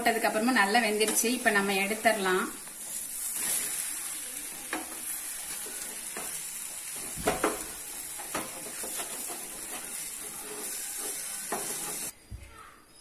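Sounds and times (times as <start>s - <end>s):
dosa sizzling on a pan: 0.0s - 12.2s
spatula scraping a pan: 2.8s - 12.1s.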